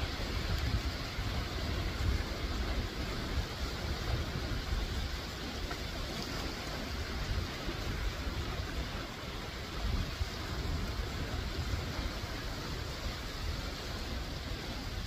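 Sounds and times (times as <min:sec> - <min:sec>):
surf breaking on rocky shore: 0:00.0 - 0:15.0
wind gusting on microphone: 0:00.0 - 0:15.0.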